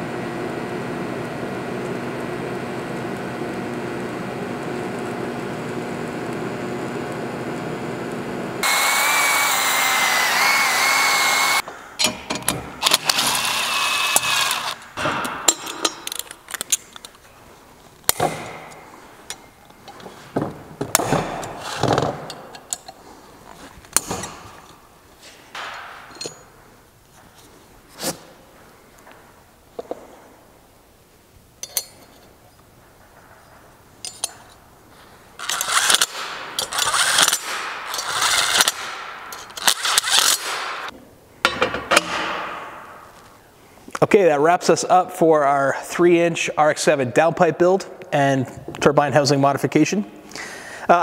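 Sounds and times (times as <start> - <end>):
welding arc humming: 0.0 - 11.6, 12.8 - 15.0
power tool whining: 8.6 - 11.6, 12.8 - 14.9, 35.4 - 40.9
metal parts clinking and scraping: 15.5 - 17.3, 25.6 - 26.5, 31.6 - 32.4, 34.0 - 34.6, 35.4 - 40.6.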